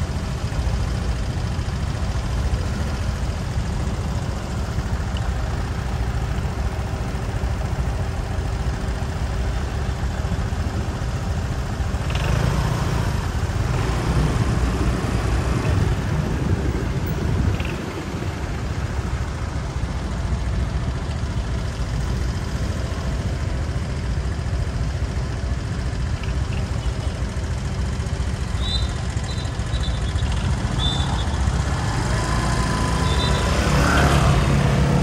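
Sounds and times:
motorbike engine and road rumble: 0.0s - 35.0s
short high chirps: 28.5s - 31.6s, 32.9s - 33.6s.

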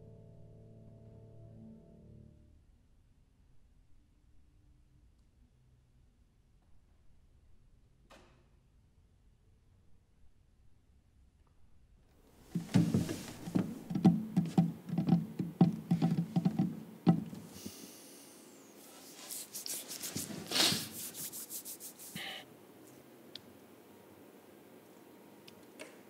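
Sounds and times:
soft rubbing and brushing: 12.5s - 17.8s, 18.7s - 22.3s
hand knocking on hard surface: 12.6s - 17.6s.

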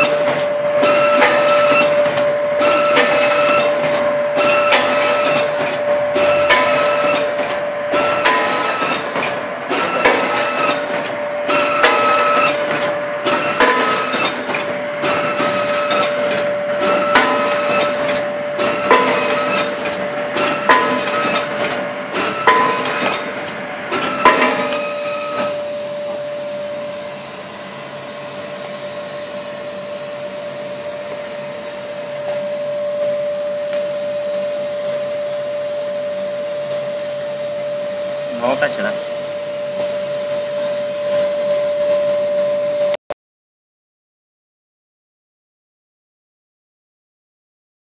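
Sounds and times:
machine clacking: 0.0s - 25.6s
machine hiss: 0.0s - 28.0s
steady machine hum: 0.0s - 43.0s.

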